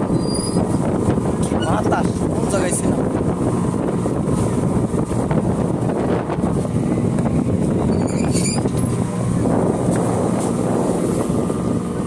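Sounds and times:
ferry engine rumble: 0.0 - 12.0
wind buffeting microphone: 0.0 - 12.0.

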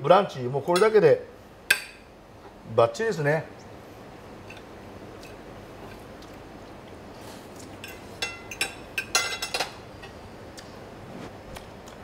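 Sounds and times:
cutlery clinking on a plate: 7.8 - 9.8.

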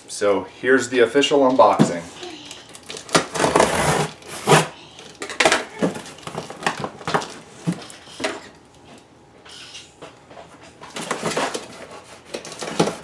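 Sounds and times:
box cutter slitting tape: 3.1 - 4.7.

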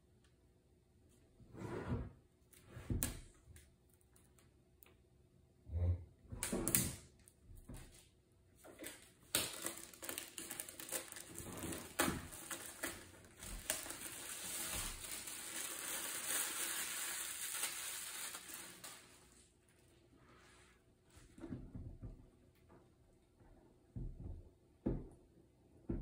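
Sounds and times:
plastic wrap crinkling: 8.7 - 20.1.

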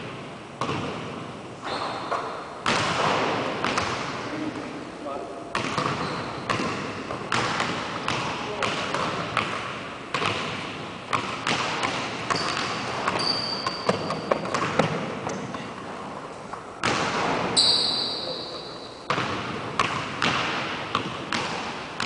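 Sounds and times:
basketballs bouncing on wood floor: 0.0 - 4.2, 5.5 - 15.9, 16.8 - 18.2, 19.1 - 22.0
sneaker squeaks: 1.6 - 2.4, 5.6 - 6.6, 12.3 - 15.7, 17.5 - 19.1.

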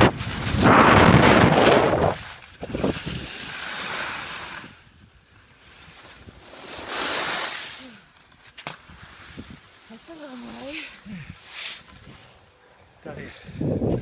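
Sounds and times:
wind rushing over microphone: 0.0 - 5.2, 8.9 - 9.7, 13.1 - 14.0.

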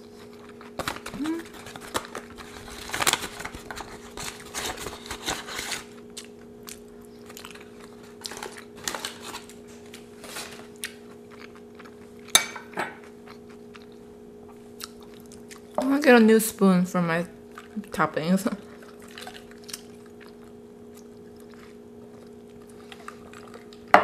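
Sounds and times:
faint steady hum: 0.0 - 24.0
aluminium foil crinkling: 0.3 - 6.0, 7.2 - 10.8.

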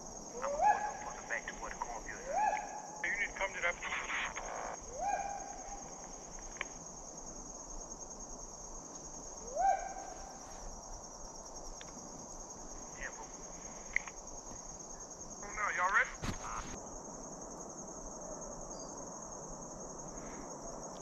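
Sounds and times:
crickets chirping: 0.0 - 21.0
hound baying: 0.3 - 1.3, 4.9 - 5.9, 9.5 - 10.4.

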